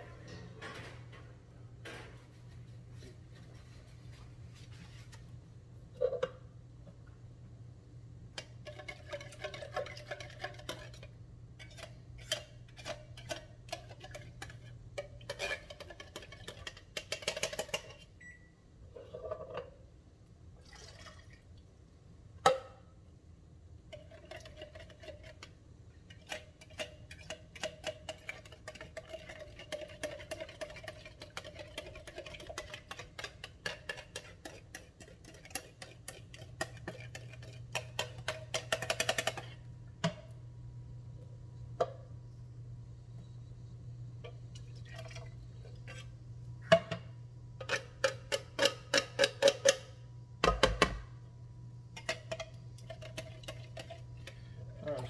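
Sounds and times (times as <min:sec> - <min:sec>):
utensils clinking against pots: 0:26.1 - 0:40.2.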